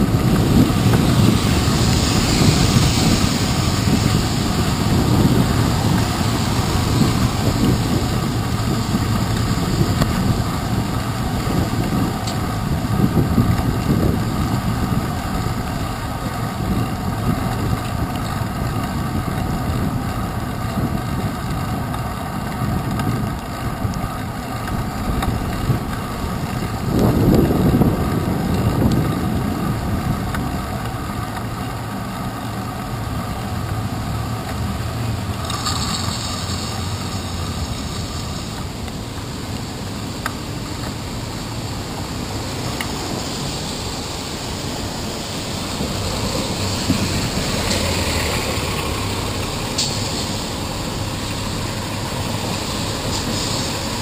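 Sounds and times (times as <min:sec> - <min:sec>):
city traffic and road rumble: 0:00.0 - 0:54.0.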